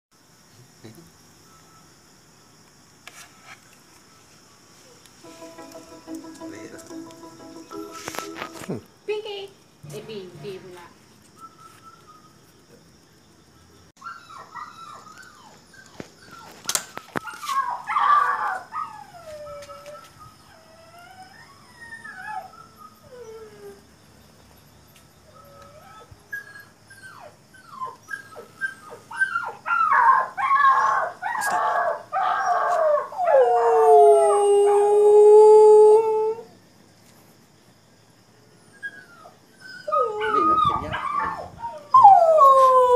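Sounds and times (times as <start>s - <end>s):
dog howling: 39.7s - 42.9s.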